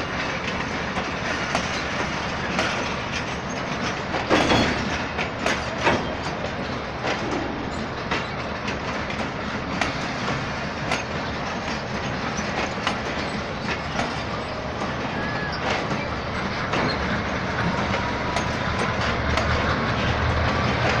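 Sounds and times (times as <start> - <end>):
train coaches rumbling: 0.0 - 21.0
train wheels clacking on track: 0.0 - 21.0
faint wheel squeal: 13.6 - 17.1.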